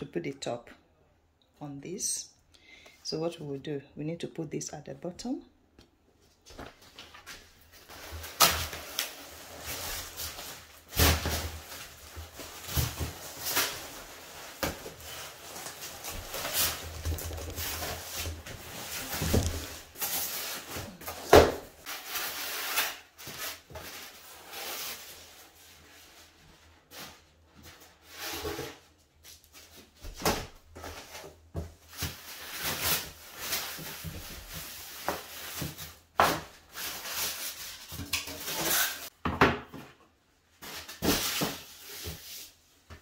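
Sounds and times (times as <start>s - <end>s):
plastic wrap rustling: 6.4s - 28.8s, 29.4s - 39.1s
cardboard packaging being handled: 6.5s - 39.1s.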